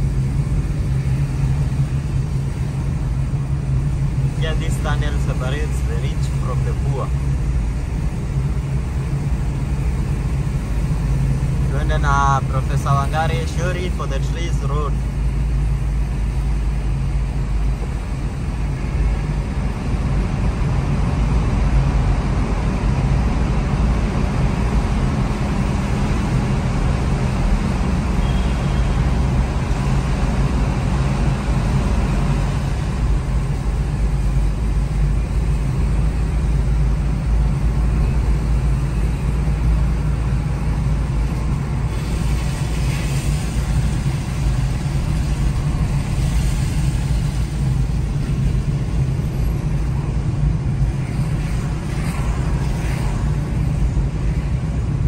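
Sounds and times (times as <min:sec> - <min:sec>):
car engine rumble: 0:00.0 - 0:55.0
tyre hiss on wet road: 0:26.9 - 0:54.9.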